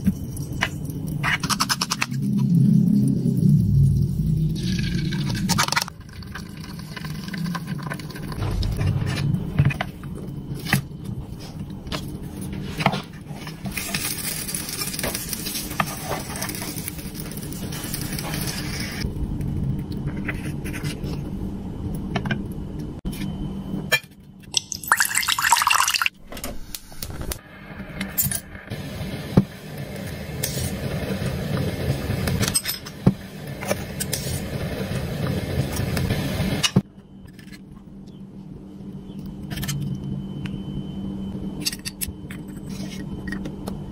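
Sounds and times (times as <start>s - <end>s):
egg cooking in a pan: 0.0s - 8.4s, 13.7s - 19.1s.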